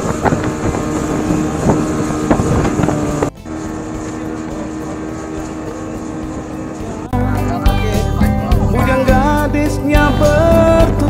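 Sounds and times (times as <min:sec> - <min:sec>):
wind buffeting microphone: 0:00.0 - 0:07.0
speedboat engine running: 0:00.0 - 0:11.0.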